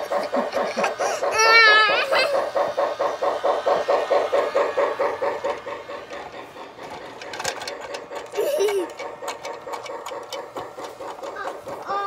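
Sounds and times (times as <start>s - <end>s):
toy train chugging on track: 0.0s - 12.0s.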